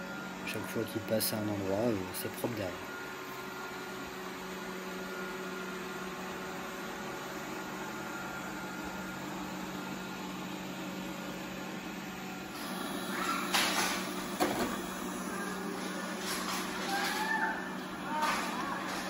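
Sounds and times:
robot vacuum cleaner running: 0:04.5 - 0:19.0.

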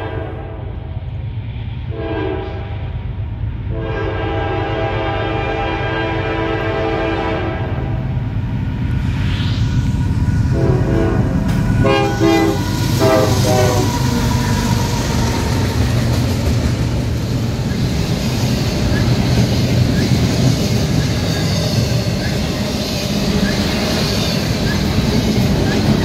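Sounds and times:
train cars rumbling and clattering: 0:00.0 - 0:26.0
locomotive horn blasts: 0:01.9 - 0:02.7, 0:03.7 - 0:08.0, 0:10.6 - 0:14.0.

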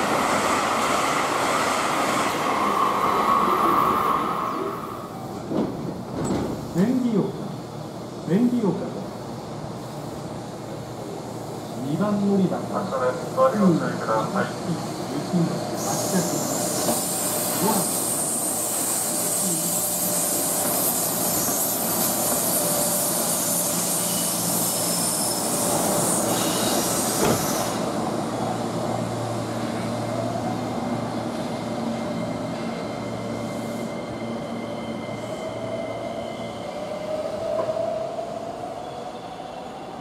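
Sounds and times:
electric locomotive passing: 0:00.0 - 0:06.0.

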